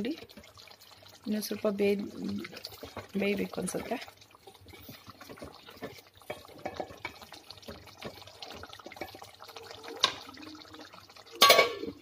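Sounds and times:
thick gravy sloshing: 0.0s - 12.0s
utensil scraping and clinking on pot: 2.3s - 10.4s, 11.4s - 12.0s.

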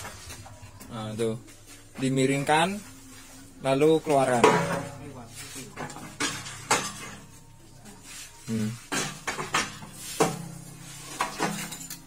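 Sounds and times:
metal clanks and knocks: 4.3s - 5.1s, 8.9s - 12.0s.

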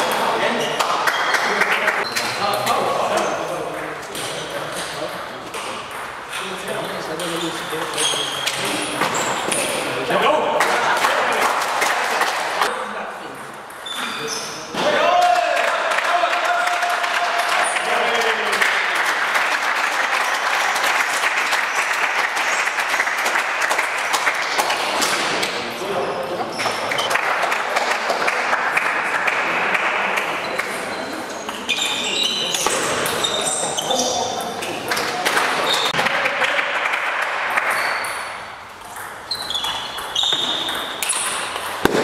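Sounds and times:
spectators clapping: 0.8s - 2.0s, 10.6s - 12.7s, 15.2s - 25.2s, 26.9s - 30.7s, 34.9s - 37.9s
spectators applauding: 15.3s - 25.0s
table tennis ball pinging: 37.6s - 42.0s.

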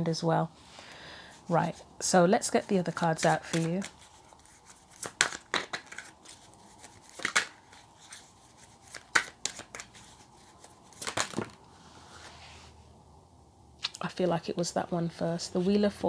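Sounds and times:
cards rustling: 1.4s - 11.6s
cards being shuffled: 2.5s - 11.6s.

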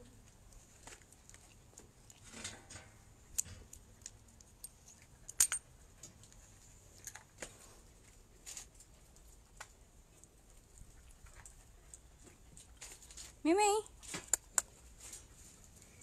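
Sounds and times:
light metallic clicks and jingles: 2.4s - 6.4s.

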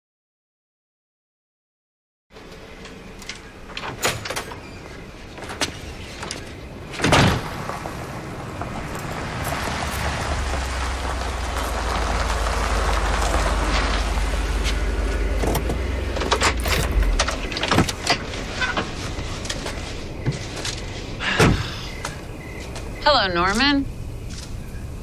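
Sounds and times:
car approaching: 4.6s - 25.0s
loud thump: 21.3s - 21.8s.

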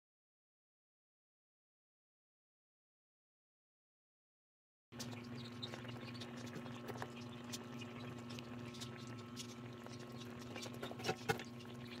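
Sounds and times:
sauce bubbling and popping: 5.0s - 12.0s
steady low hum: 5.0s - 12.0s.

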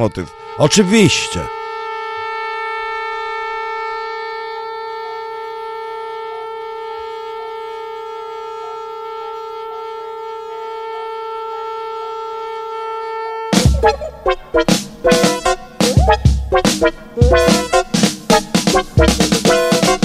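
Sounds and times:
long held note: 0.0s - 20.0s
faint short notes: 13.6s - 18.8s.

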